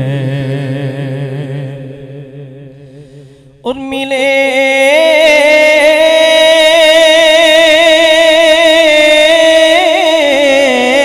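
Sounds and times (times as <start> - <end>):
man reciting through a microphone: 0.0 - 11.0.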